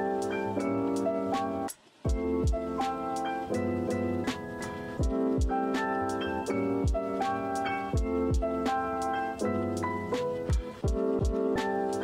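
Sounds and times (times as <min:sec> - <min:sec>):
held keyboard chords: 0:00.0 - 0:12.0.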